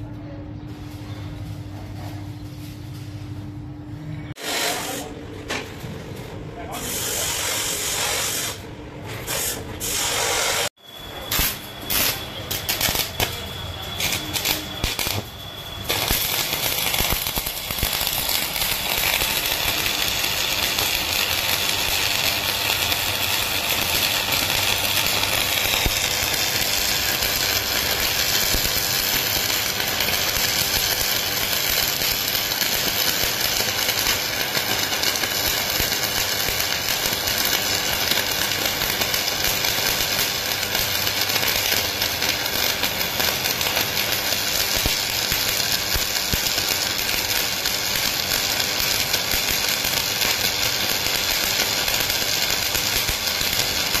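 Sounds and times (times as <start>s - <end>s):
arc welding crackle: 4.3s - 5.2s, 6.1s - 54.0s.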